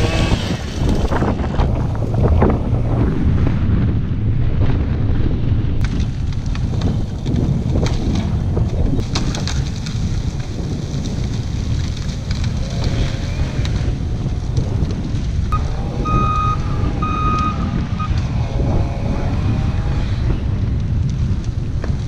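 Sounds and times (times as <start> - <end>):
wind buffeting microphone: 0.0 - 22.0
sharp cracks: 5.8 - 22.0.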